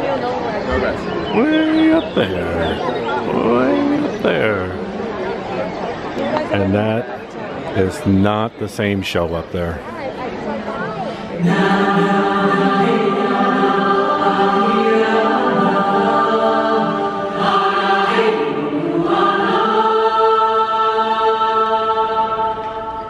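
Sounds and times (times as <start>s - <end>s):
choir singing: 0.7s - 4.8s, 11.4s - 23.0s.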